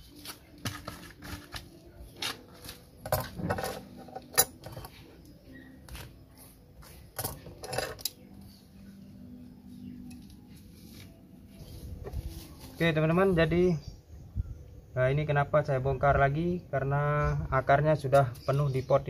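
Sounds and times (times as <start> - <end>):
tools scraping soil in a pot: 0.1 - 5.1, 10.1 - 13.4.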